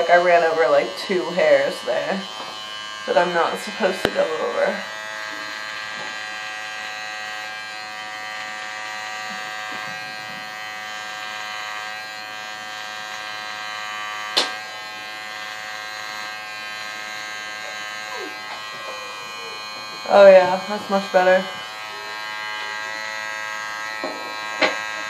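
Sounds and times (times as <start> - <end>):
electric hair clippers buzzing: 0.0 - 25.0
sharp click: 14.4 - 14.6.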